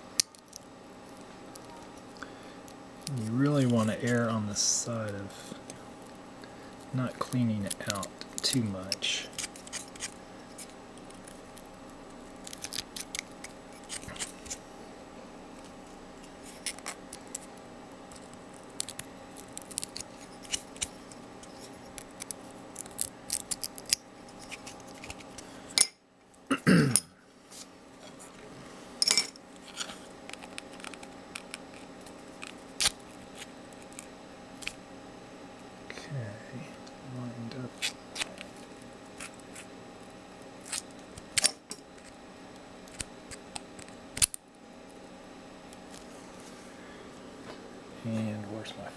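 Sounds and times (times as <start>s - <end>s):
steady background hum: 0.0s - 48.9s
knife scraping plastic: 7.3s - 10.7s.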